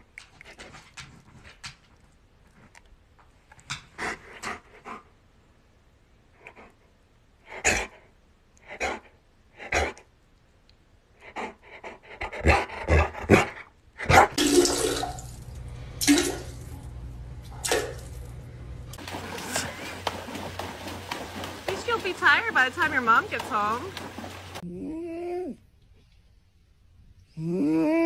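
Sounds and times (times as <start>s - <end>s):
water rushing in toilet bowl: 14.4s - 16.8s, 19.0s - 24.6s.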